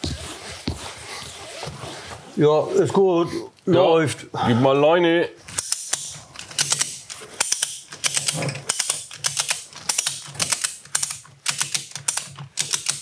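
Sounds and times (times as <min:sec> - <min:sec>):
ratchet strap clicking: 0:05.6 - 0:13.0.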